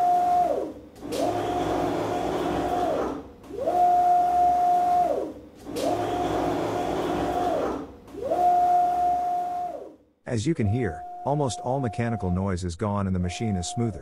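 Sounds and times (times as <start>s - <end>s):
router drive whine: 0.0s - 9.9s.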